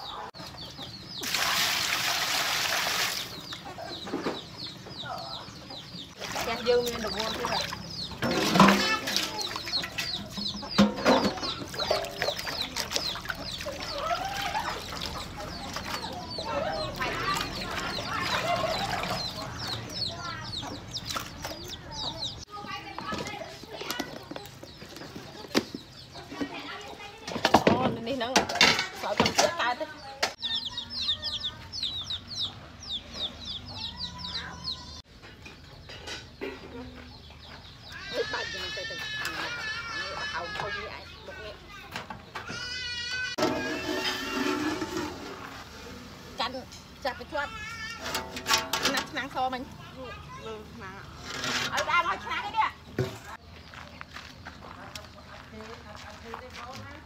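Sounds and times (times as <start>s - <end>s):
chickens clucking: 0.0s - 1.3s, 3.1s - 47.4s
chicks peeping: 0.0s - 1.3s, 3.2s - 28.4s, 29.0s - 44.5s
faint yard noise: 0.0s - 57.0s
water sloshing in metal basin: 6.2s - 19.9s, 43.4s - 45.8s, 47.9s - 49.5s.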